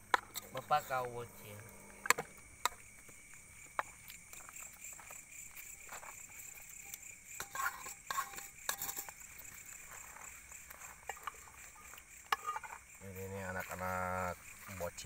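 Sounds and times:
crickets chirring: 0.0s - 15.0s
spoon scraping metal pot: 6.8s - 9.2s, 11.0s - 12.8s.

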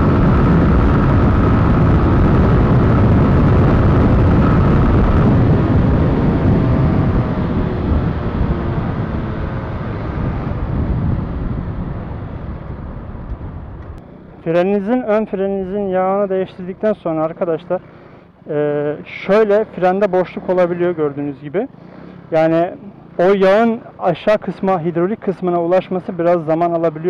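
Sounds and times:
wind rushing over microphone: 0.0s - 18.5s
motorcycle running: 0.0s - 27.0s.

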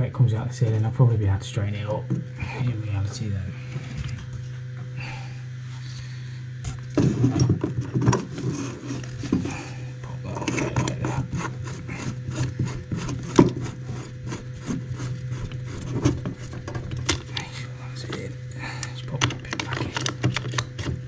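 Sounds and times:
low steady hum: 0.0s - 21.0s
filter knocking and scraping on pipe: 10.2s - 18.3s, 19.1s - 21.0s.

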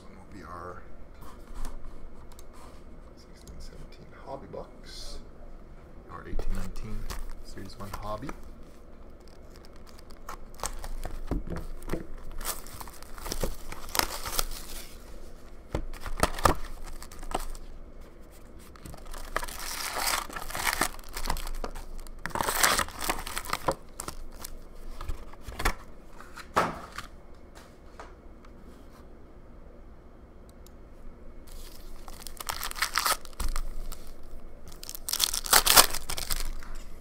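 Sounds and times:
foil packs crinkling: 9.1s - 15.2s, 15.8s - 17.8s, 18.7s - 25.8s, 31.5s - 36.8s.

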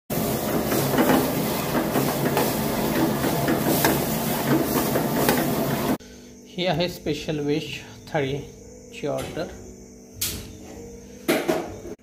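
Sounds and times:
chicken sizzling in hot oil: 0.1s - 6.0s.

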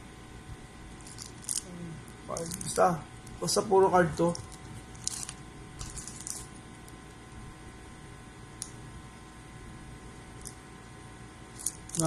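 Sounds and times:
low room hum: 0.0s - 12.0s
cards rustling and clicking: 1.0s - 1.6s, 2.3s - 2.9s, 4.2s - 7.0s, 11.6s - 12.0s.

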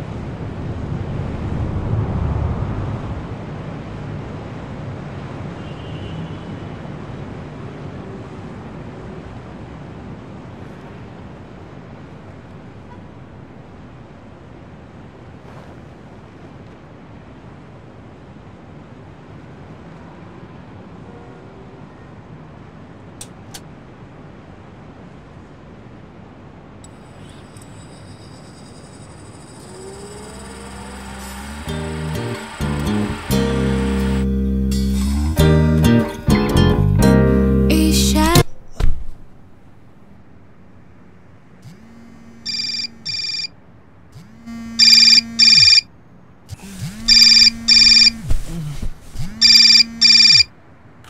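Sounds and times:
breeze through open window: 0.0s - 37.6s, 38.2s - 51.0s
phone vibration buzz: 26.9s - 35.4s, 41.6s - 43.5s, 44.2s - 45.9s, 46.5s - 50.5s
electronic alarm beeps: 42.4s - 43.5s, 44.6s - 45.9s, 47.1s - 48.2s, 49.4s - 50.5s
sharp clicks: 44.8s - 45.8s, 46.5s - 48.2s, 49.4s - 50.5s.

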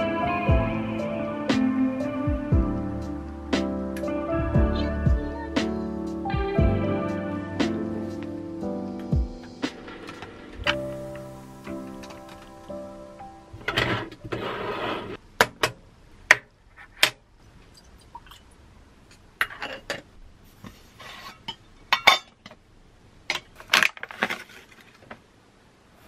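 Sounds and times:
foil bag crinkling: 23.6s - 25.0s.

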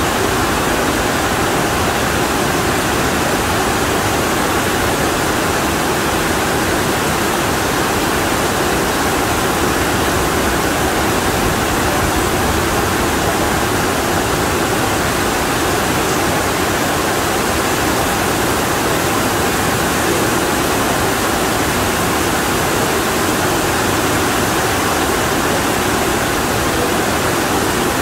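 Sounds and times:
torrential rain pouring: 0.0s - 28.0s.

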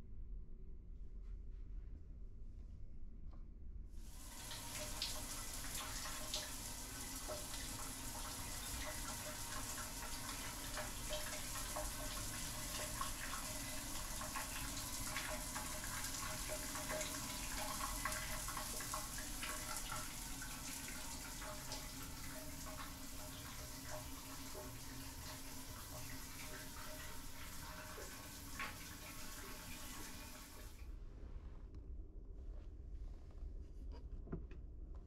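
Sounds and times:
shower water spraying on tiles: 4.0s - 30.8s.

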